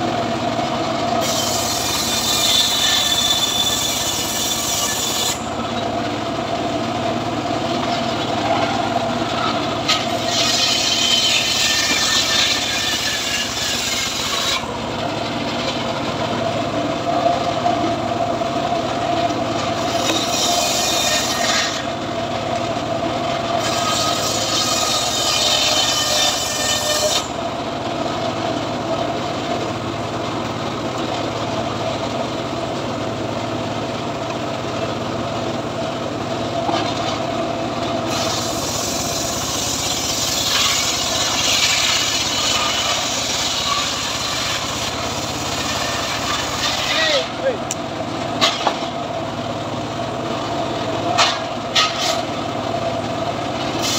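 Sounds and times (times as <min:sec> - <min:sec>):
circular saw running: 0:00.0 - 0:53.9
saw blade ripping through wood: 0:01.2 - 0:05.5, 0:09.8 - 0:14.7, 0:19.8 - 0:21.9, 0:23.6 - 0:27.3, 0:38.1 - 0:47.3, 0:51.2 - 0:52.3.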